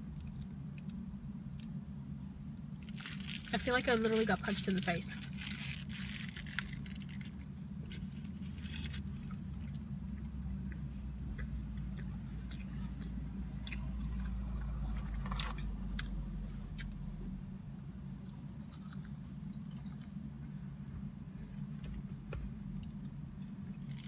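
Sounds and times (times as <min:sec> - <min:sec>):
steady low hum: 0:00.0 - 0:24.0
person chewing food: 0:08.0 - 0:17.1, 0:18.2 - 0:20.3.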